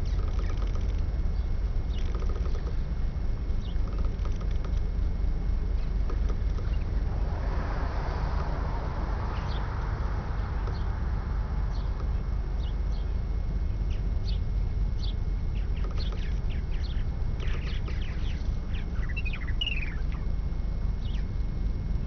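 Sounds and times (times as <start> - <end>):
small birds chirping: 0.0 - 2.9, 3.6 - 4.9, 5.7 - 7.2, 9.1 - 20.4, 21.0 - 21.4
steady low rumble: 0.0 - 22.0.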